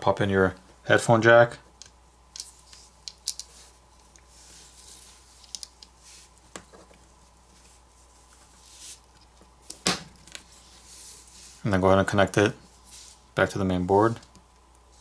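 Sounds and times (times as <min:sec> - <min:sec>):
small parts clicking: 0:01.8 - 0:04.2, 0:05.4 - 0:05.9
soft rustling: 0:02.5 - 0:09.7, 0:10.4 - 0:12.0, 0:12.6 - 0:13.4.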